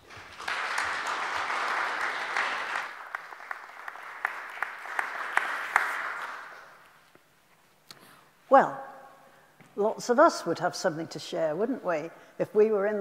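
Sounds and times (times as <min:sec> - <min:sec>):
congregation applauding: 0:00.0 - 0:07.0.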